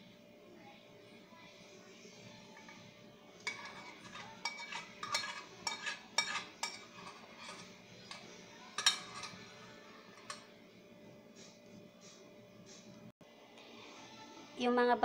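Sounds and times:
metal spoon scraping a pot: 3.4 - 9.5, 10.1 - 10.5.

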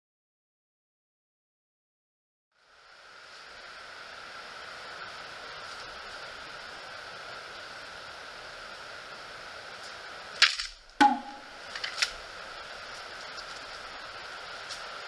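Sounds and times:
background hiss: 2.6 - 15.0
sword falling on leaves: 10.4 - 10.8.

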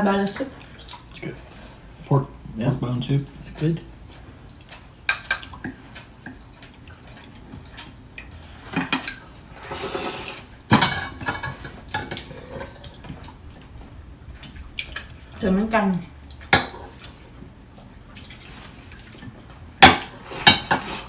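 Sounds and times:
cutlery clinking on ceramic bowls: 5.1 - 5.8.

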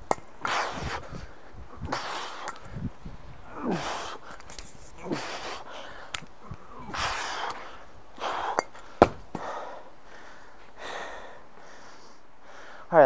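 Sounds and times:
hard hissing breaths: 0.4 - 2.9, 3.5 - 13.0
kettlebell knocking onto dirt: 8.5 - 9.5.

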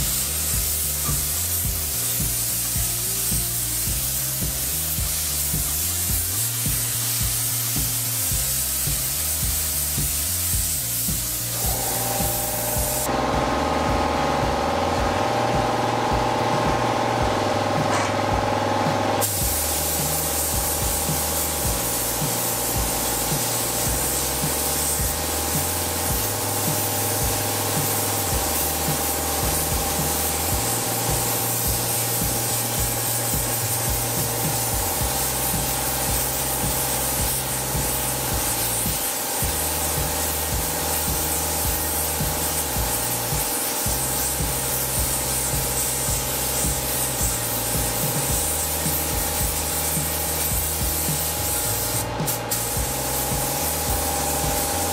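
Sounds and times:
spray gun hissing: 0.0 - 54.9.

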